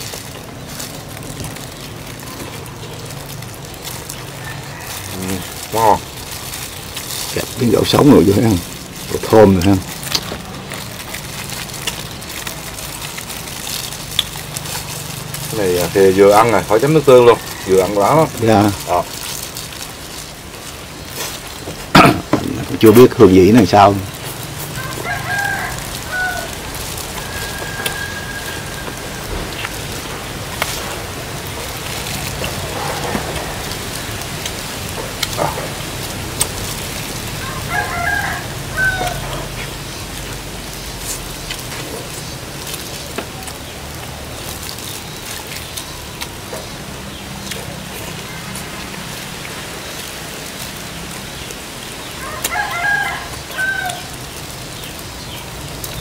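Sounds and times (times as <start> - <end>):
steady background noise: 0.0 - 56.0
rooster crowing: 4.1 - 5.9, 17.0 - 18.4, 24.6 - 30.0, 37.2 - 39.6, 52.1 - 54.2.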